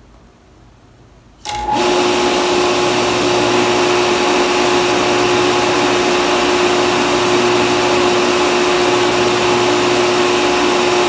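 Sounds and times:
fan noise: 0.0 - 11.0
water pump motor humming: 1.4 - 11.0.

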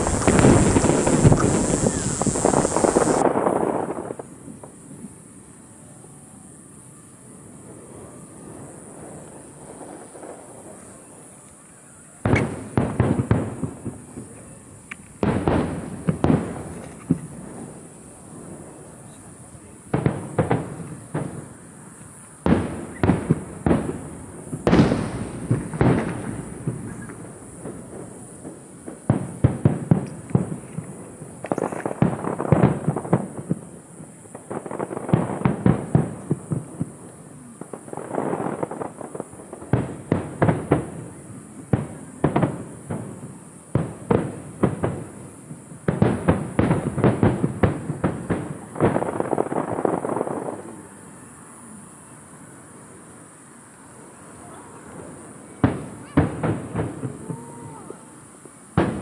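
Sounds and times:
fireworks rapid bangs: 0.0 - 5.0, 12.2 - 21.7, 22.4 - 50.8, 54.7 - 57.9, 58.7 - 59.0.

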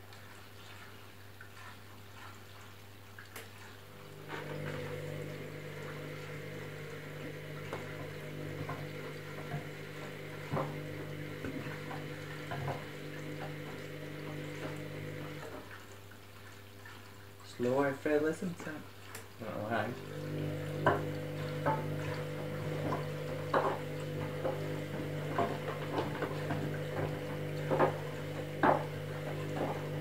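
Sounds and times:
water sloshing and splashing: 0.0 - 30.0
washing machine motor hum: 3.9 - 15.8, 19.4 - 30.0
small knocks: 20.8 - 30.0.

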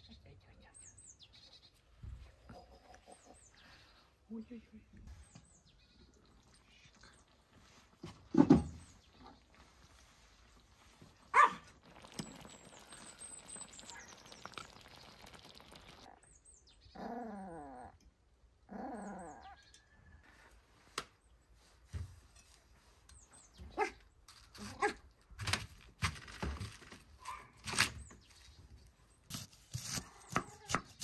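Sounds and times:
birds chirping: 0.0 - 17.3
dog barking: 11.3 - 11.7.

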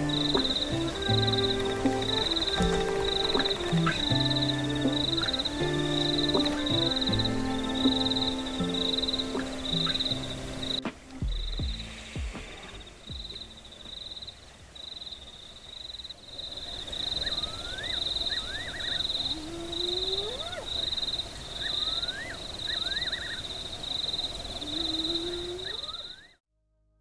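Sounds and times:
hyena whooping: 0.0 - 10.7
insects trilling: 0.0 - 26.4.

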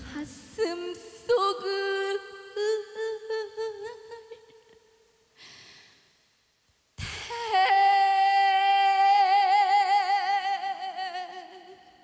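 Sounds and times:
woman singing unaccompanied: 0.0 - 4.6, 7.3 - 12.0
woman breathing in: 5.4 - 6.1.

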